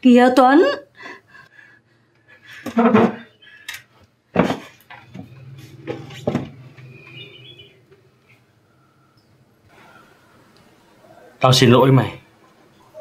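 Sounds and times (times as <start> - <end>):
wooden chairs bumping: 2.6 - 3.3, 4.3 - 7.0.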